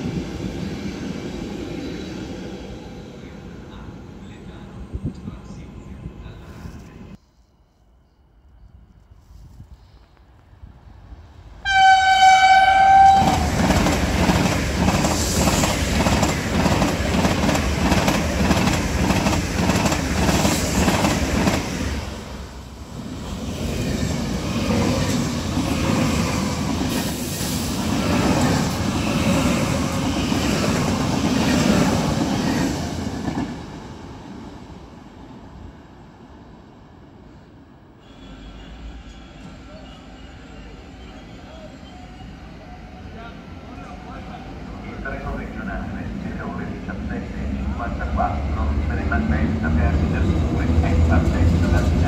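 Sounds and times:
train running by: 0.0 - 7.2, 8.2 - 52.0
train horn: 11.6 - 13.7, 38.0 - 40.3
train wheels clattering on rails: 13.2 - 21.7.

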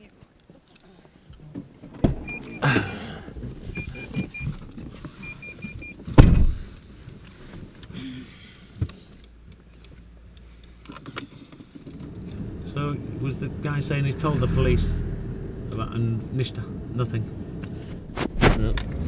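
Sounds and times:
car engine rumbling: 1.2 - 19.0
car warning chime beeping: 2.2 - 2.7, 3.7 - 4.5, 5.2 - 6.0
heavy thump: 6.1 - 6.7.

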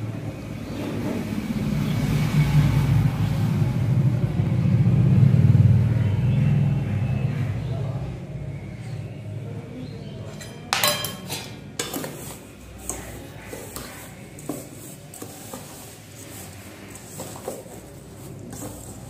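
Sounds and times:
spoon scraping a steel bowl: 10.2 - 19.0
metal ladle clanking on pan: 10.3 - 14.7.

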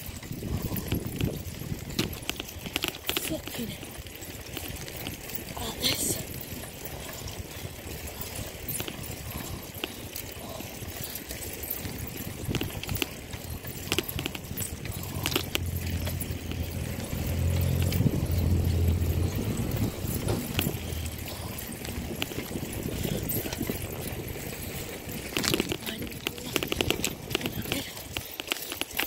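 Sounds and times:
wind on microphone: 0.0 - 2.8, 11.8 - 28.1
bicycle tyres rolling on asphalt: 0.0 - 29.0
small clicks and rattles: 0.0 - 29.0.

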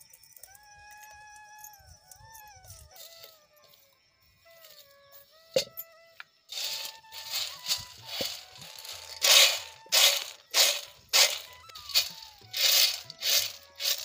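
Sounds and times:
chickpeas rattling on a steel plate: 6.5 - 14.0.

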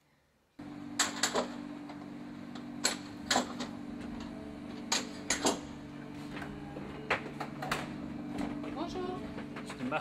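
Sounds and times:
low mechanical hum: 0.0 - 10.0.

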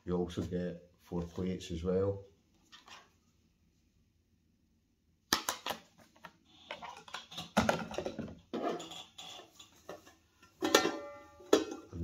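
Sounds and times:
plates and bowls clattering: 6.8 - 12.0.

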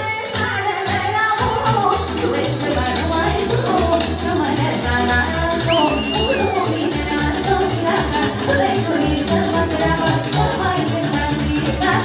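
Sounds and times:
bass line: 0.4 - 12.0
saxophone: 5.1 - 11.4.

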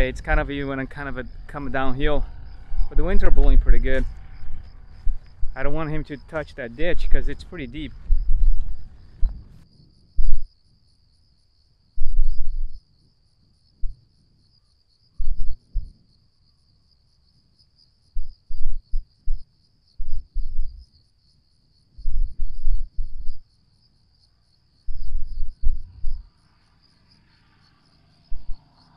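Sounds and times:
wind buffeting microphone: 0.0 - 9.6, 24.9 - 26.3
insects chirping: 0.0 - 28.9.

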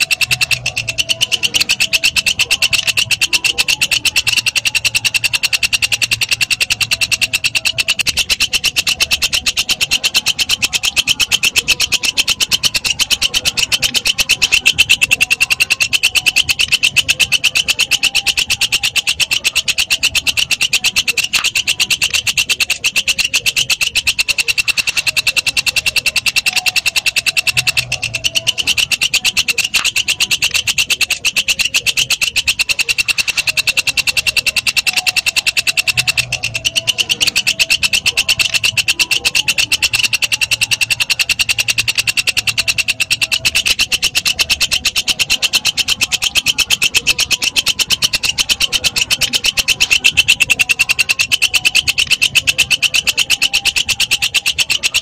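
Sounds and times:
katydid stridulating: 0.0 - 55.0.

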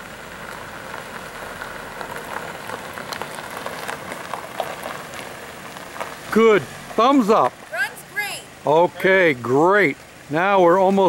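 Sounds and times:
car tyres crunching on gravel: 0.0 - 8.6.

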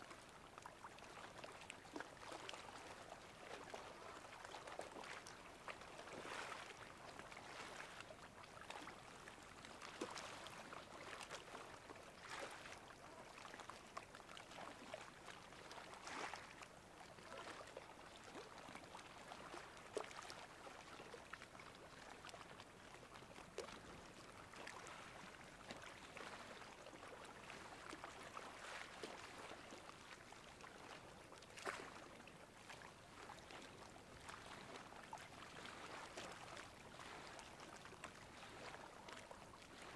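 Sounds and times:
water splashes: 0.1 - 16.6, 17.2 - 39.9
water lapping: 0.1 - 39.9.

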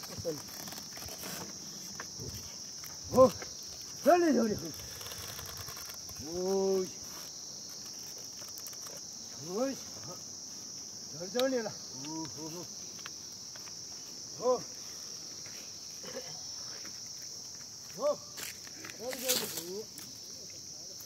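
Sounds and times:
crickets chirring: 0.0 - 21.0
man calling to oxen: 4.0 - 4.8, 18.0 - 18.3.

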